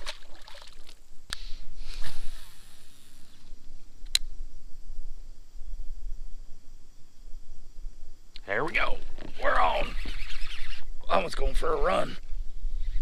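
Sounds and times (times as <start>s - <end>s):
wind rumble on microphone: 3.4s - 13.0s
sharp clicks: 4.0s - 4.3s.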